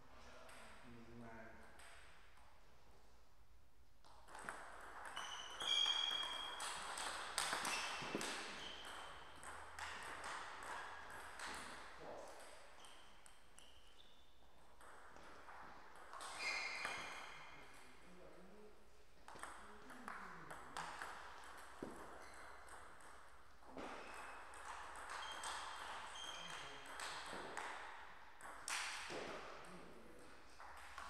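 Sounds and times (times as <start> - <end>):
shoes squeaking on floor: 5.0 - 10.1, 12.7 - 14.5, 16.2 - 17.6, 21.8 - 22.6, 23.7 - 26.9.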